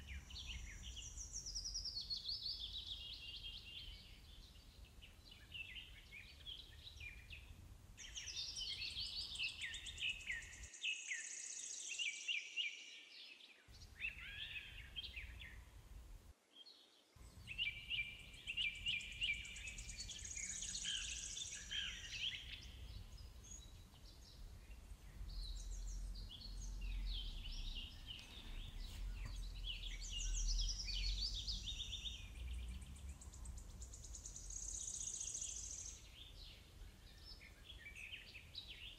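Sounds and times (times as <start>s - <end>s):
birds chirping and trilling: 0.0s - 15.8s, 17.2s - 38.9s
faint low rumble: 22.5s - 34.9s.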